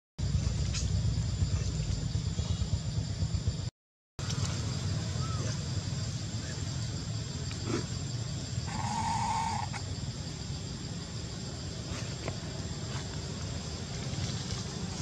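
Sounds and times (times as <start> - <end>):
steady low rumble: 0.2 - 15.0
macaque call: 8.7 - 9.8.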